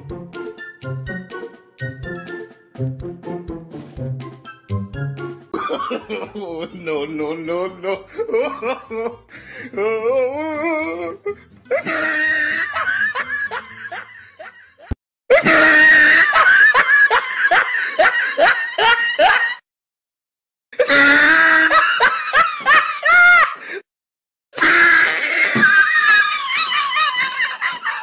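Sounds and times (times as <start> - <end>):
laughter in quick bursts: 26.3 - 28.0.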